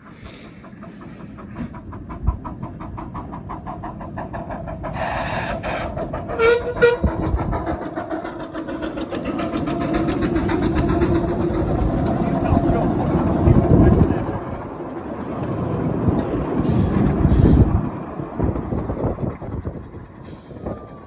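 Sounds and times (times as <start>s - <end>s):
steam locomotive exhaust chuffing: 0.0s - 21.0s
steam hiss: 4.9s - 6.0s
steam whistle toots: 6.4s - 7.1s.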